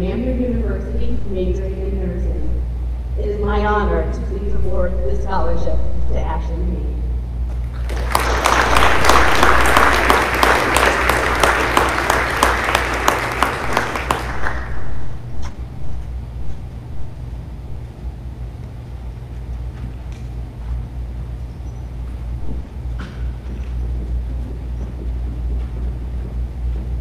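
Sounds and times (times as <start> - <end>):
steady low hum: 0.0 - 27.0
audience applauding: 7.6 - 15.2.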